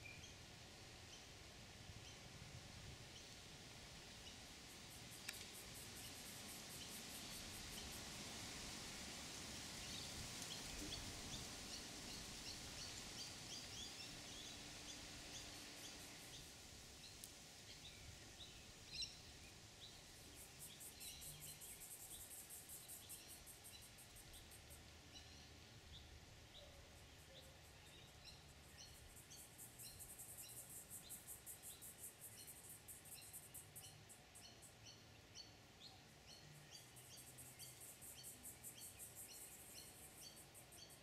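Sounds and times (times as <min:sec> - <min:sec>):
small birds chirping: 0:09.8 - 0:41.0.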